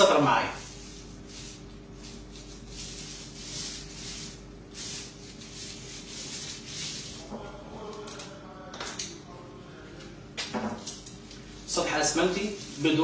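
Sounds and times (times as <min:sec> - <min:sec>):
paint roller rasping on cement: 0:00.6 - 0:07.2.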